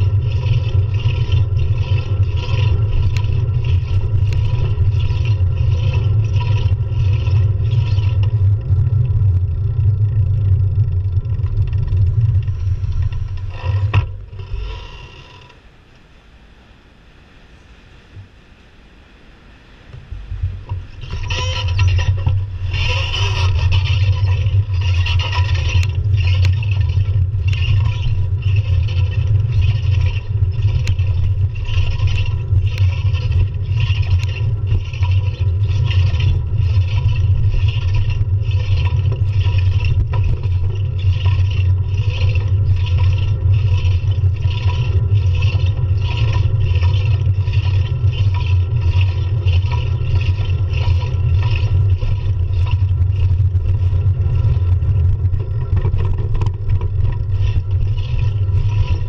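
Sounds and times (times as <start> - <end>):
rhythmic rasping clatter: 0.0 - 15.6, 20.5 - 59.0
wind and road rumble: 0.0 - 59.0.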